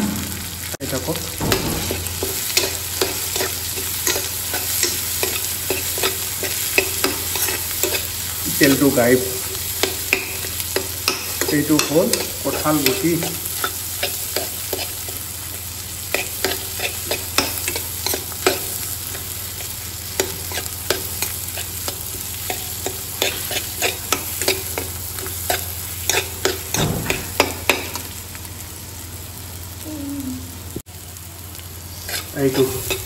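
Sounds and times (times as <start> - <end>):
frying sizzle: 0.0 - 33.0
metal spoon scraping pan: 1.5 - 8.1, 9.4 - 15.2, 16.1 - 19.3, 20.2 - 28.1, 32.0 - 33.0.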